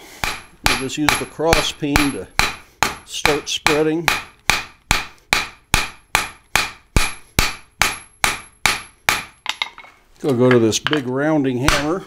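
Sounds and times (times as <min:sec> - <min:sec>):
hammer striking steel on anvil: 0:00.2 - 0:09.9, 0:11.6 - 0:12.0.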